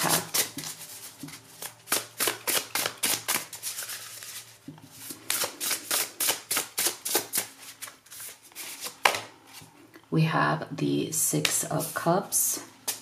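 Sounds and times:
cards being shuffled: 0.0s - 9.6s.

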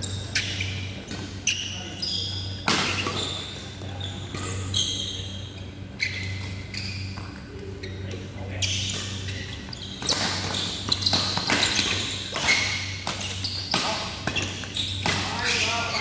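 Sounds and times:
shoes squeaking on floor: 0.0s - 16.0s.

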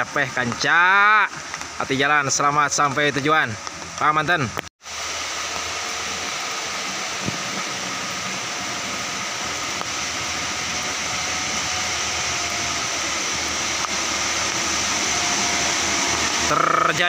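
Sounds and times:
heavy rain hissing on road: 0.0s - 17.0s
minibus engines climbing: 5.6s - 17.0s.

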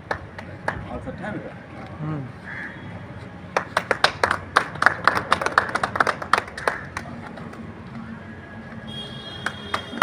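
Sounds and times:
people clapping: 0.0s - 1.0s, 3.5s - 7.7s, 9.3s - 10.0s.

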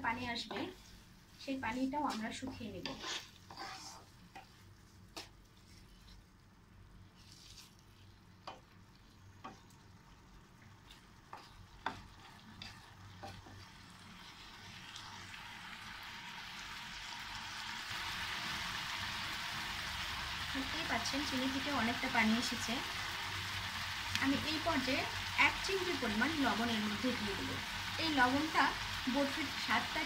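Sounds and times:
spatula scraping frying pan: 2.4s - 6.1s, 10.9s - 13.7s
sizzling hiss: 10.7s - 30.0s.

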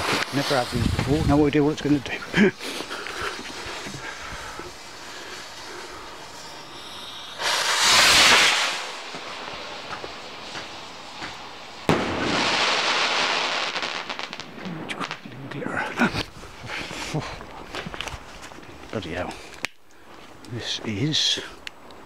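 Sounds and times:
firework rocket whoosh: 0.0s - 15.2s
firework crackling: 0.0s - 19.8s
firework bang: 6.2s - 14.5s.

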